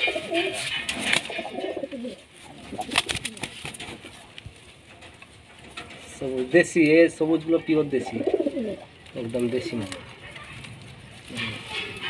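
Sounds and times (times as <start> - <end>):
pigeons cooing: 0.0 - 4.2, 7.5 - 12.0.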